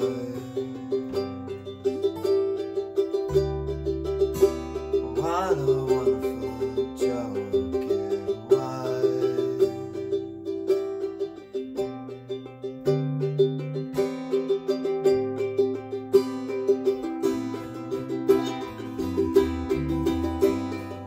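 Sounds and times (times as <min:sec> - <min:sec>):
acoustic guitar strumming chords: 0:00.0 - 0:21.0
ukulele strumming: 0:00.0 - 0:21.0
electric bass held notes: 0:17.6 - 0:21.0.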